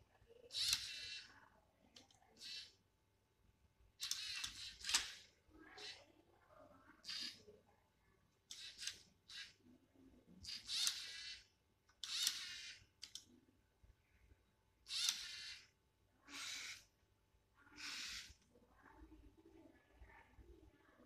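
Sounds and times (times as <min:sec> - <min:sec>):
motors whirring through plastic gears: 0:00.5 - 0:01.3, 0:02.3 - 0:02.8, 0:04.0 - 0:06.0, 0:07.0 - 0:07.4, 0:08.5 - 0:09.6, 0:10.4 - 0:13.2, 0:14.9 - 0:15.7, 0:16.3 - 0:16.9, 0:17.8 - 0:18.4.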